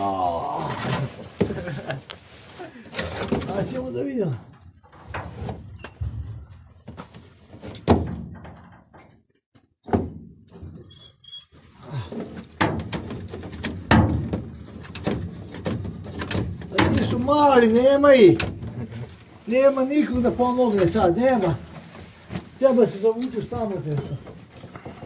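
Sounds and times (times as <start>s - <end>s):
short high squeaks: 10.7s - 11.6s
knocks on sheet-metal panels: 12.6s - 15.8s.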